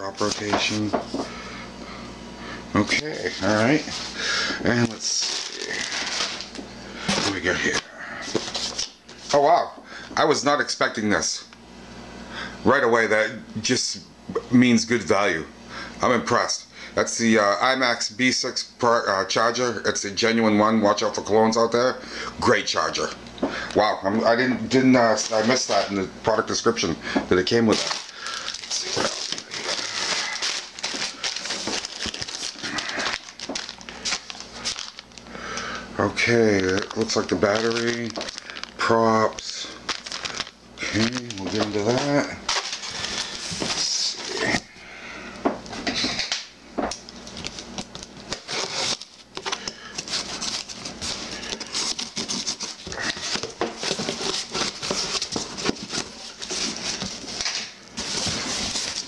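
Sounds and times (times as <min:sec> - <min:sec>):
plastic packing crinkling: 0:00.0 - 0:01.2, 0:02.8 - 0:09.2, 0:23.8 - 0:26.0, 0:27.4 - 0:44.6, 0:47.1 - 0:59.0
cardboard scraping: 0:27.6 - 0:35.0, 0:48.3 - 0:57.4, 0:58.0 - 0:59.0.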